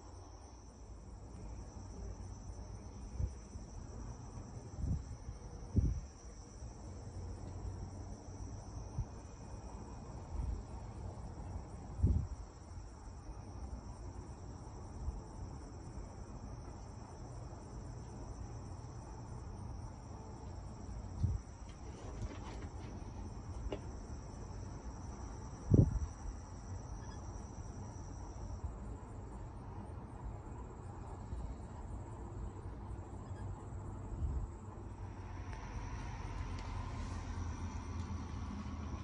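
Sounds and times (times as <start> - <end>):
crickets chirping: 0.0 - 39.0.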